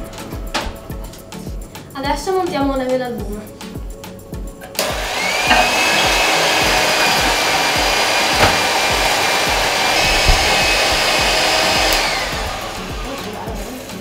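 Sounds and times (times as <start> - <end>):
electric hand mixer whining: 4.7 - 14.0.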